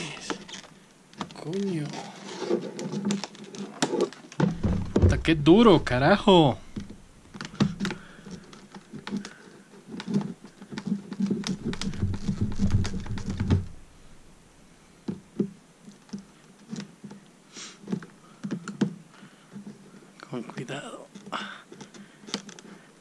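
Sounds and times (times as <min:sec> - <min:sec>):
clicks knocks and low thuds: 0:04.4 - 0:08.1, 0:10.0 - 0:14.2.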